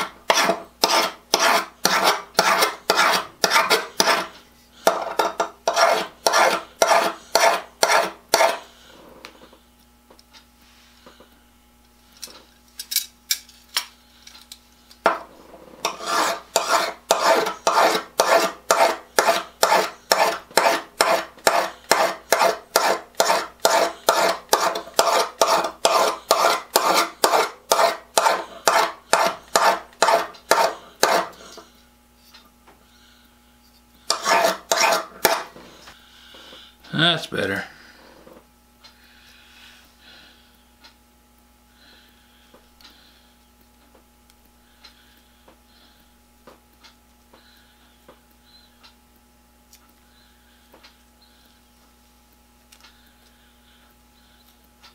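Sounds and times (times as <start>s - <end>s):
file scraping scissor blade: 0.0s - 8.7s, 15.8s - 31.6s, 34.1s - 35.5s.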